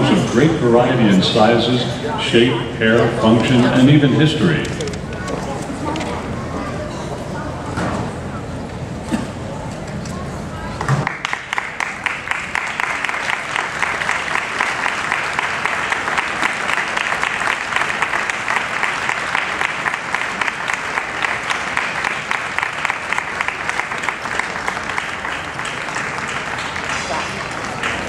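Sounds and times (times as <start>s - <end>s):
arena audience applauding: 11.0s - 28.0s.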